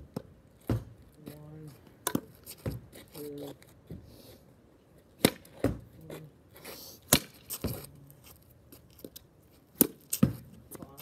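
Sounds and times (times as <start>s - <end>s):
ball hitting garage door: 5.2s - 5.9s
racket hitting tennis ball: 5.2s - 5.9s, 7.1s - 7.9s.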